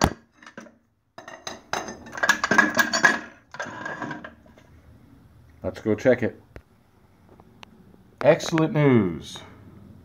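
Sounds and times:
metal jack handle clattering: 0:00.4 - 0:04.4.

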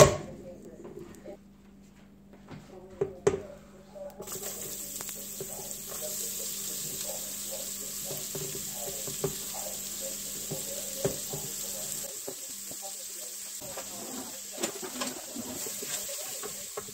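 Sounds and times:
onion and garlic sizzling in oil: 0:04.2 - 0:16.9.

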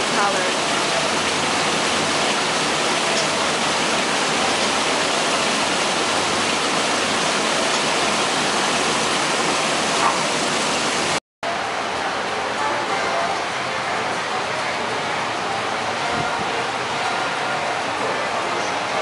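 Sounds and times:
small waterfall splashing into pond: 0:00.0 - 0:12.3.

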